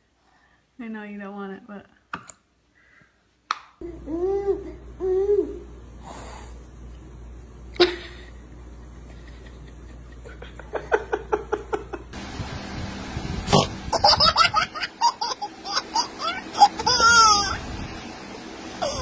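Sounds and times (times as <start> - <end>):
baby laughing: 13.5 - 17.6, 18.8 - 19.0.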